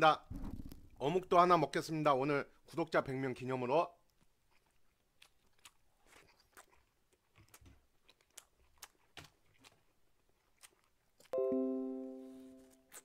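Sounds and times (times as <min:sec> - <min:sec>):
man chewing: 0:04.0 - 0:11.4, 0:12.6 - 0:13.0
ringing musical note: 0:11.4 - 0:12.8.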